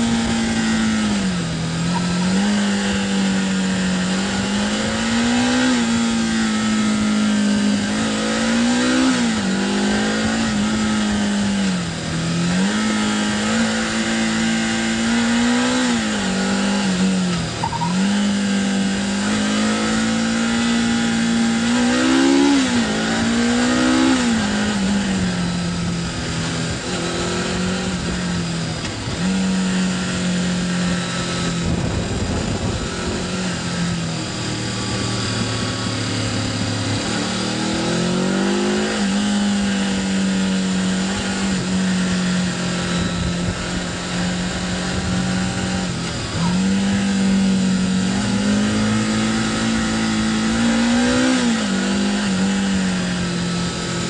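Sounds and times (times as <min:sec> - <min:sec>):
motorcycle engine running: 0:00.0 - 0:54.0
wind and road noise: 0:00.0 - 0:54.0.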